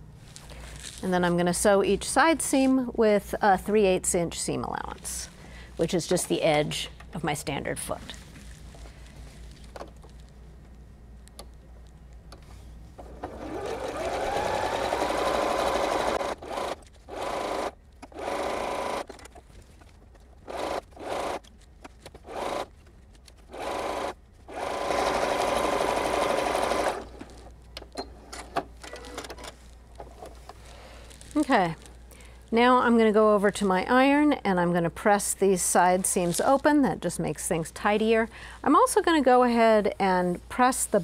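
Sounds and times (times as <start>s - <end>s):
sewing machine whine: 13.0s - 19.1s, 20.4s - 21.5s, 22.2s - 22.7s, 23.5s - 27.4s.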